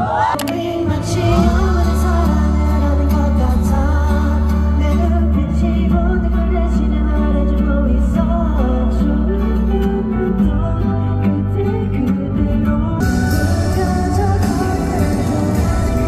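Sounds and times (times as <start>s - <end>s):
pop song with guitar and singing: 0.0s - 16.0s.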